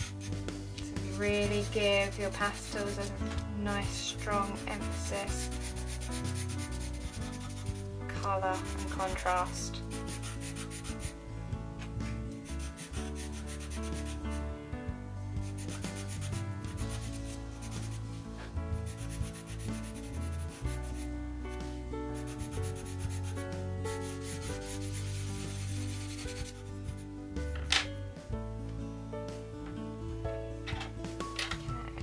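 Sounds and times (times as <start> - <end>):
pastel pencil scratching paper: 0.0 - 11.2, 12.4 - 14.4, 15.4 - 27.0
background music: 0.0 - 32.0.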